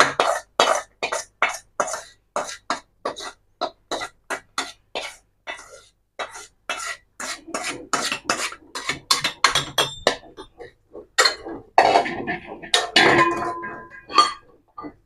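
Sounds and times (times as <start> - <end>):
flour scraped off steel plate: 0.1 - 9.2
steel tin clinking: 12.7 - 15.0.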